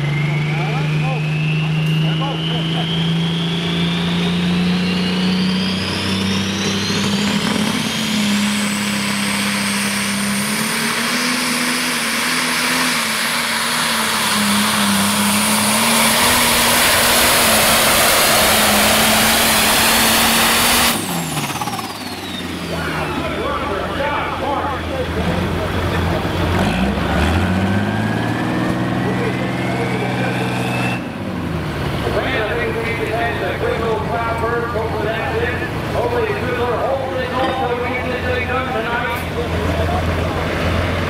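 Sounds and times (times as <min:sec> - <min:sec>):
turbo whine: 0:00.0 - 0:25.0
diesel engine at full throttle: 0:00.0 - 0:41.0.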